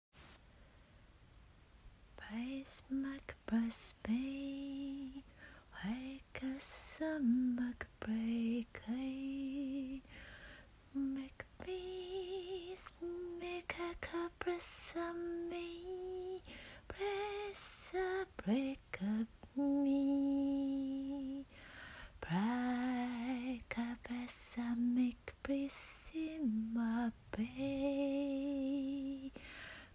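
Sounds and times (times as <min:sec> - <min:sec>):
woman singing unaccompanied: 0:02.2 - 0:10.1, 0:10.9 - 0:29.9
breaths: 0:05.3 - 0:05.7, 0:10.0 - 0:10.8, 0:16.4 - 0:16.9, 0:21.5 - 0:22.2, 0:29.3 - 0:29.9.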